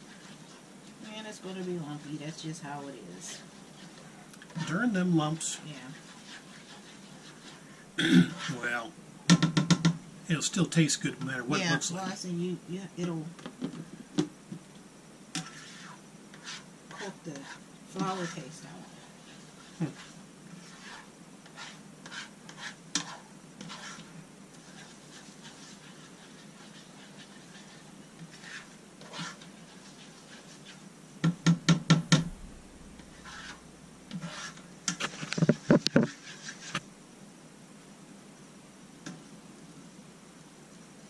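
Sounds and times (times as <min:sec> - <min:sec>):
spoon scraping a frying pan: 0:05.9 - 0:08.7, 0:15.3 - 0:30.8, 0:33.0 - 0:36.8.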